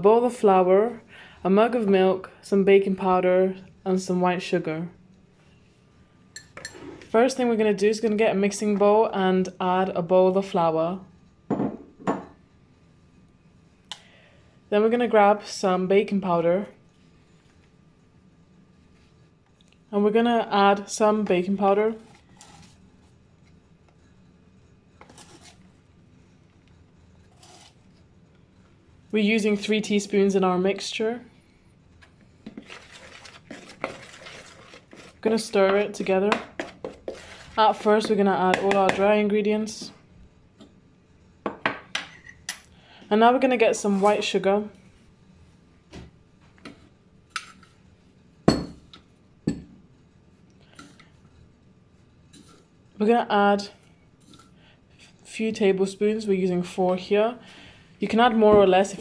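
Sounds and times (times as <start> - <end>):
low room hum: 0.0 - 59.0
teaspoon scraping powder: 24.9 - 25.7, 27.2 - 28.0, 32.4 - 39.0.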